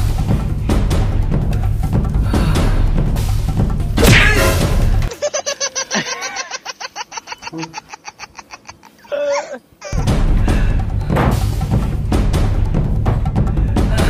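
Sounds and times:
loud music with drums: 0:00.0 - 0:05.1, 0:10.0 - 0:14.0
person laughing rapidly: 0:05.0 - 0:10.2.

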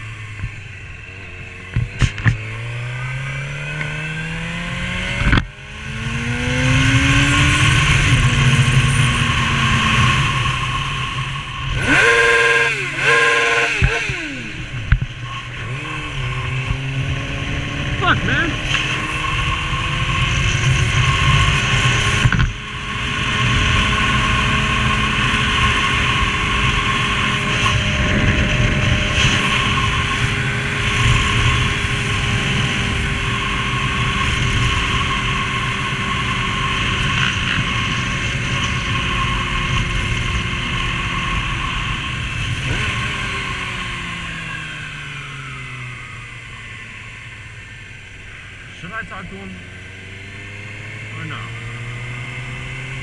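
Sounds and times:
motorcycle engine running: 0:00.0 - 0:53.0
wind noise: 0:13.7 - 0:46.3.

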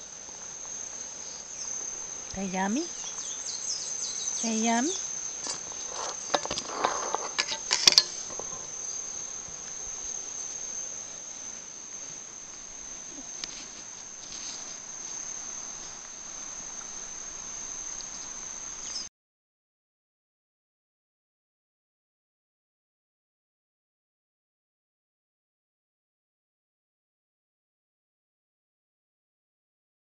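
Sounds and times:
crickets trilling: 0:00.0 - 0:19.1
clicks and clinks on metal bowl: 0:07.4 - 0:08.2.

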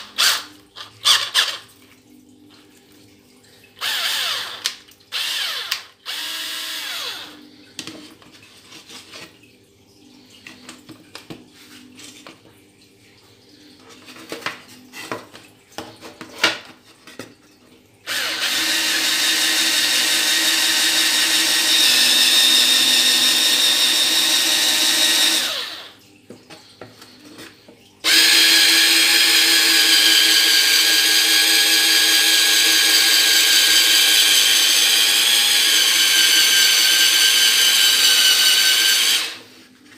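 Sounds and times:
cordless drill boring into wood: 0:00.0 - 0:01.6, 0:03.8 - 0:07.4, 0:18.1 - 0:26.0, 0:28.0 - 0:39.4.

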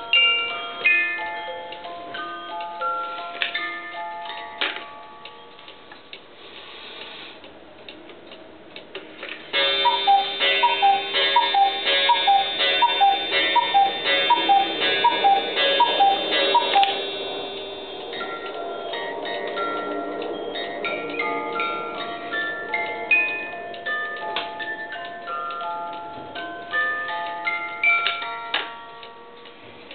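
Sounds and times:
cuckoo clock ticking: 0:09.6 - 0:17.1
cuckoo clock calling: 0:09.6 - 0:17.3
steady ringing tone: 0:09.6 - 0:25.4.

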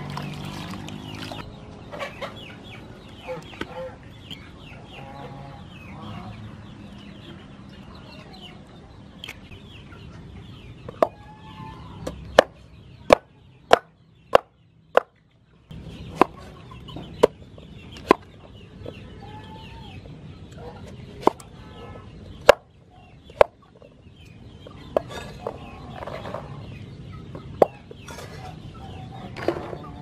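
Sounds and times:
chickens clucking: 0:00.0 - 0:30.0.

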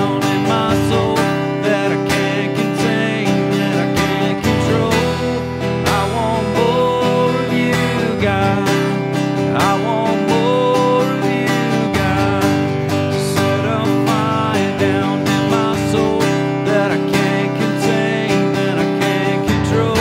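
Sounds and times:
acoustic guitar strumming: 0:00.0 - 0:20.0
sliding guitar melody: 0:00.0 - 0:20.0.

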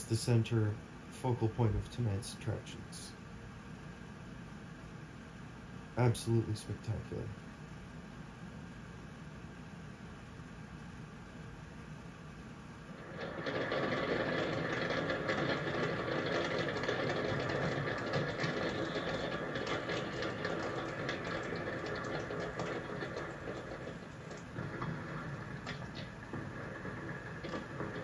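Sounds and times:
steady rumble: 0:12.8 - 0:28.0
fireworks crackling and popping: 0:13.0 - 0:28.0.

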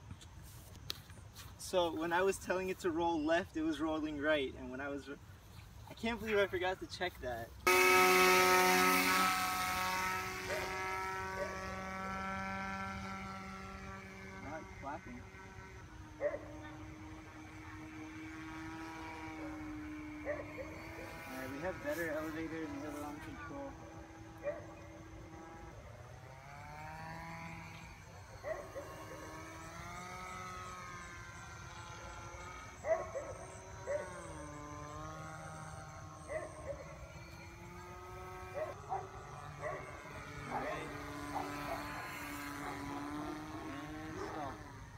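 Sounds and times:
model plane motor whine: 0:07.6 - 0:44.9.

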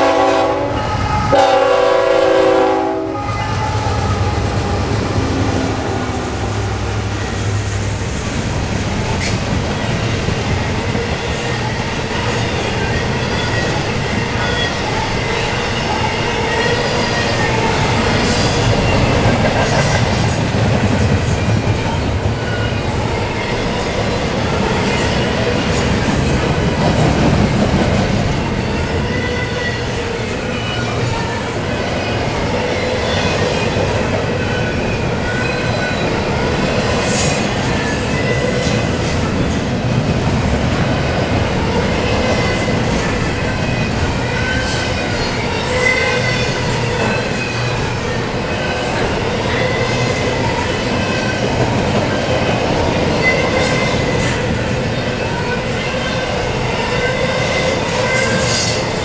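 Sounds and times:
locomotive air horn: 0:00.0 - 0:07.6
train cars rolling: 0:00.0 - 0:59.0.

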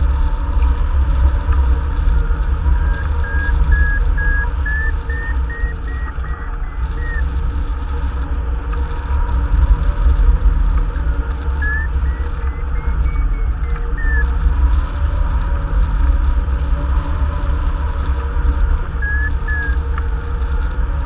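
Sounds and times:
variometer beeping: 0:02.7 - 0:07.4, 0:11.6 - 0:14.4, 0:19.0 - 0:19.8.

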